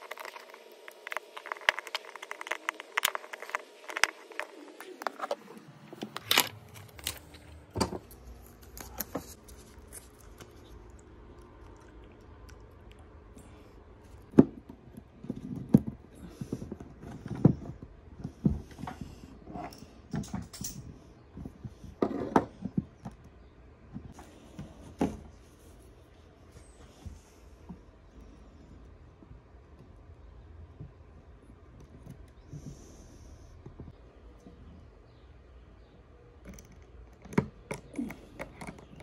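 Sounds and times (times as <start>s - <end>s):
metal tools clicking and tapping: 19.6s - 20.9s.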